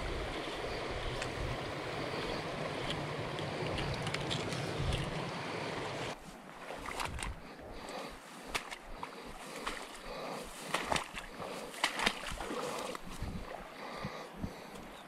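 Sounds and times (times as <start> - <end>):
rush of moving water: 0.0 - 14.8
small splashes in shallow water: 6.4 - 7.5, 8.2 - 13.7.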